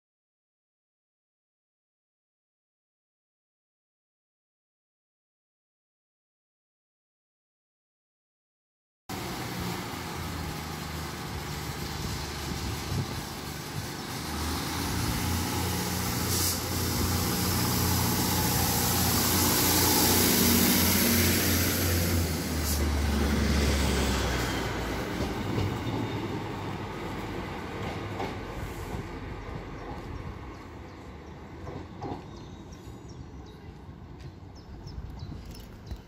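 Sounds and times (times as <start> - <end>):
train diesel engines running: 9.1 - 36.0.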